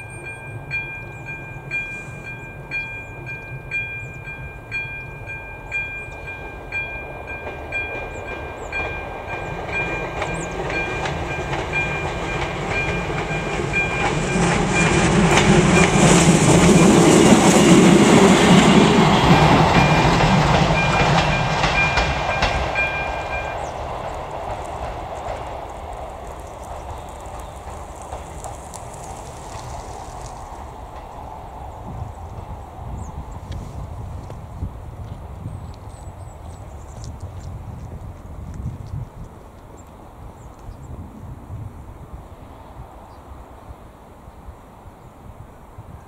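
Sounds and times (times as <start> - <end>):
crossing warning bell ringing: 0.0 - 25.6
railcar rumble: 0.0 - 46.0
wind gusting on microphone: 0.0 - 46.0.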